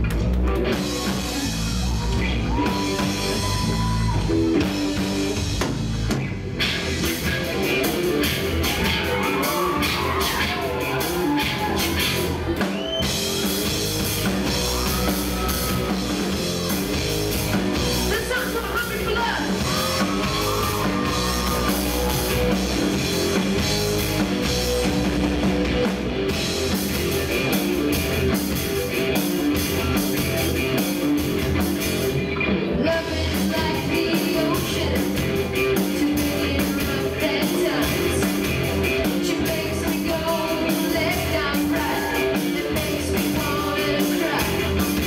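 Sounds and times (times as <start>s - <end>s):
drum kit: 0.0s - 45.0s
electric bass: 0.0s - 45.0s
electric guitar: 0.0s - 45.0s
person singing: 32.8s - 45.0s.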